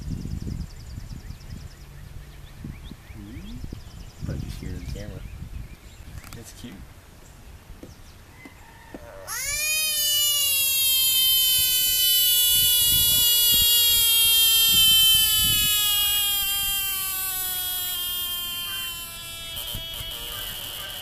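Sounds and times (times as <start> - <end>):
frog distress scream: 9.0 - 21.0.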